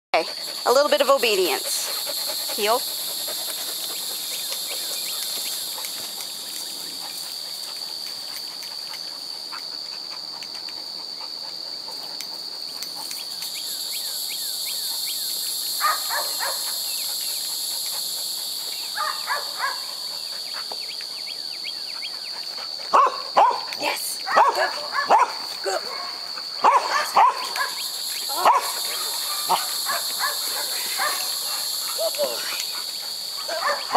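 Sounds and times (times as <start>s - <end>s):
insects buzzing: 0.2s - 33.9s
dog yipping: 24.3s - 25.3s, 33.4s - 33.9s.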